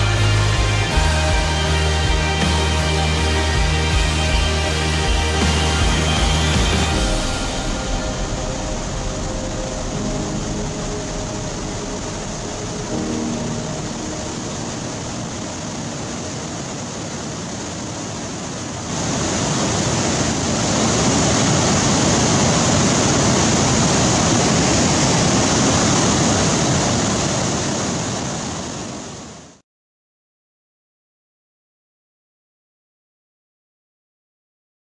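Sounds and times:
river rushing over a weir: 5.3 - 29.6.

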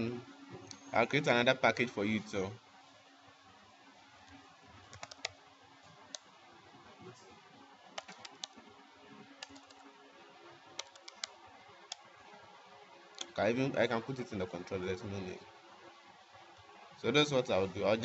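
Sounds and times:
faint steady hum: 0.0 - 18.0
computer keyboard keys clicking: 4.9 - 5.4, 8.0 - 8.6, 9.4 - 9.8, 10.8 - 12.0.

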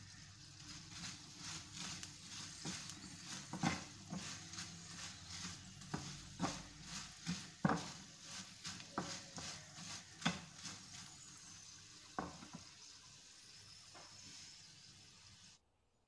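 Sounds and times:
fries sizzling in oil: 0.0 - 15.6
metal spatula scraping a pan: 0.1 - 12.7.

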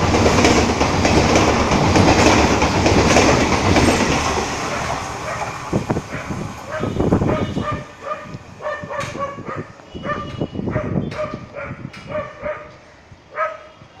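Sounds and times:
train rumble: 0.0 - 14.0
dog yelping: 6.1 - 12.7.

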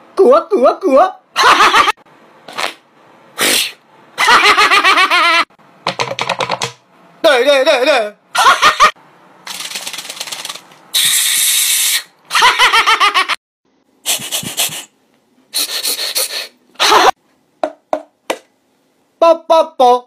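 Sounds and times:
man laughing: 1.4 - 2.0, 4.2 - 5.4, 7.5 - 8.9, 12.3 - 13.4, 16.8 - 17.2
hiss: 3.4 - 3.8, 10.9 - 12.1, 14.0 - 14.9, 15.5 - 16.6
rapid clicks: 9.5 - 10.8.

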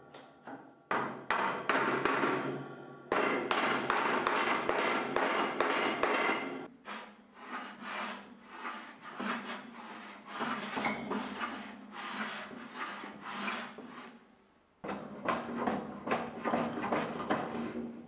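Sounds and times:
hand sanding strokes: 6.7 - 14.2.

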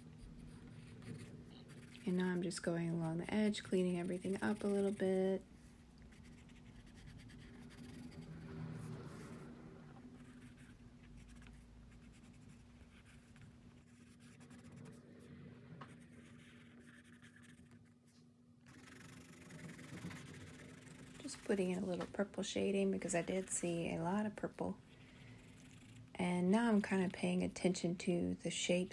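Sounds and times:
pencil scratching on paper: 0.0 - 5.3, 6.1 - 15.2, 15.8 - 18.0, 18.7 - 24.3
steady low hum: 0.0 - 28.9.

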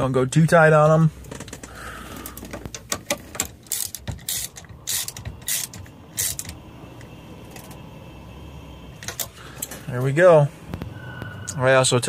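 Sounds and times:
hand ratchet clicking: 3.6 - 6.6.

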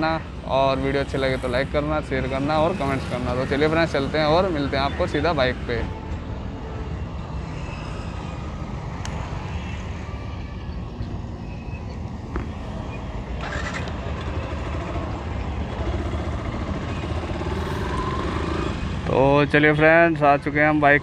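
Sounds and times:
motorcycle engine rumble: 4.9 - 19.0.

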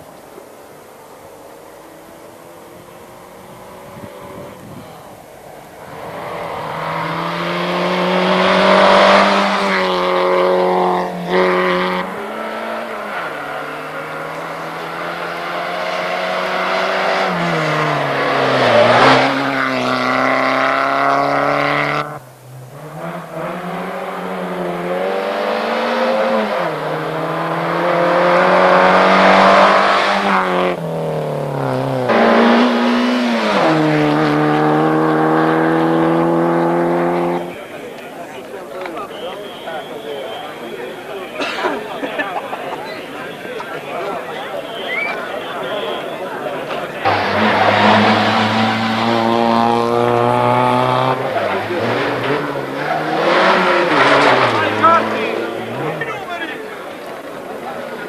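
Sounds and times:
rally car engines revving: 0.0 - 58.0.

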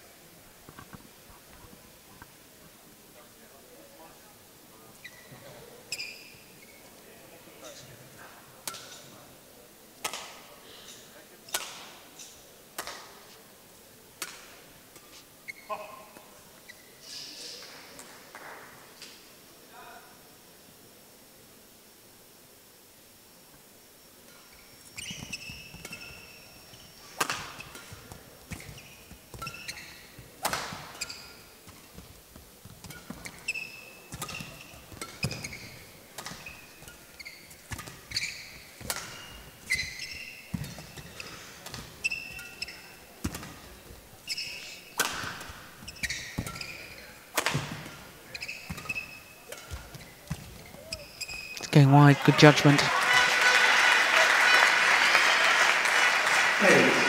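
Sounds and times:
shoes squeaking on court floor: 5.0 - 7.0, 15.0 - 17.6, 24.3 - 52.8
racket striking shuttlecock: 27.2 - 32.0, 32.7 - 37.0, 37.7 - 39.9, 40.5 - 43.7, 45.0 - 51.1.

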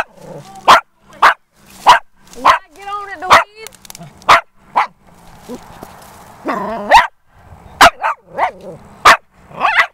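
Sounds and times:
small dog barking: 0.0 - 2.7, 3.3 - 3.5, 4.3 - 5.6, 6.5 - 7.2, 7.8 - 9.9.

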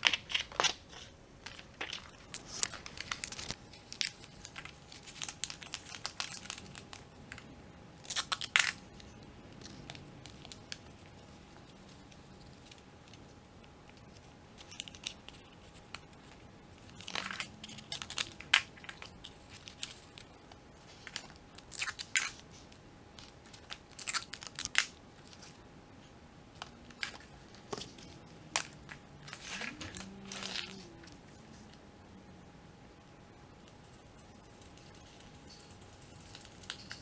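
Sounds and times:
paper rustling and crinkling: 0.0 - 7.0, 26.6 - 31.8.

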